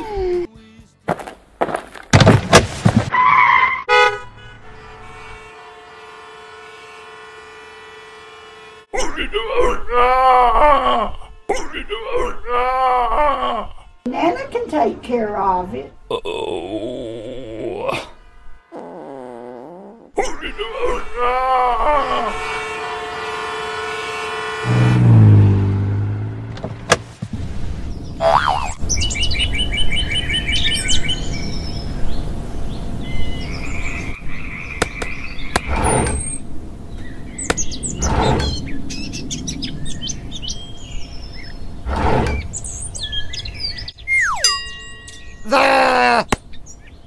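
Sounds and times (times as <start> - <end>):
outdoor background noise: 0.0 - 47.0
dull knocks: 1.6 - 3.1
birds chirping: 27.8 - 47.0.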